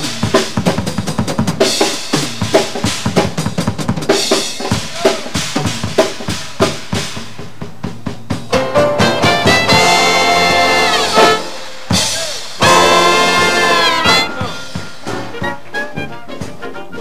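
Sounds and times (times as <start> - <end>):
jazz drum solo: 0.0 - 17.0
held horn note: 9.2 - 11.7, 12.6 - 15.7.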